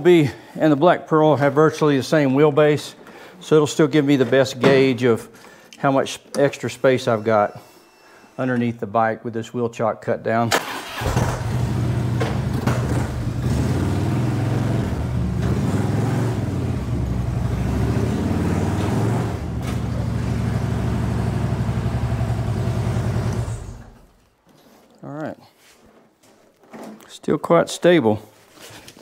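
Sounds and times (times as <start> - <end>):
motorcycle engine running: 11.1 - 24.0.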